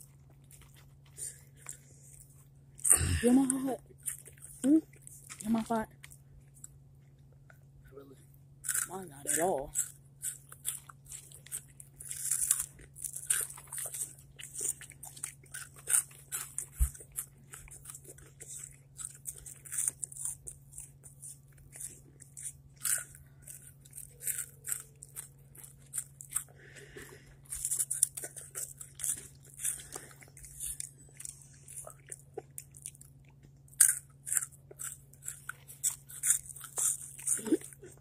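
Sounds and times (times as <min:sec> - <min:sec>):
quiet chewing: 0:00.0 - 0:38.0
chips crunching: 0:08.6 - 0:38.0.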